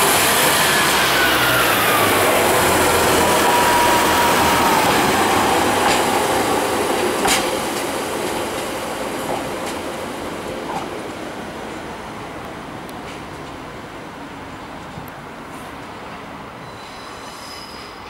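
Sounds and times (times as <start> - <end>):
wheels clicking on track: 0.0 - 10.0
train rumbling over rails: 0.0 - 18.0.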